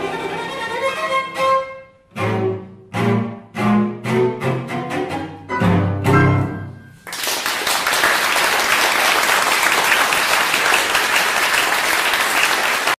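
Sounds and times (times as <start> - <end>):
cello and piano chord: 0.0 - 7.0
audience applause: 7.0 - 13.0.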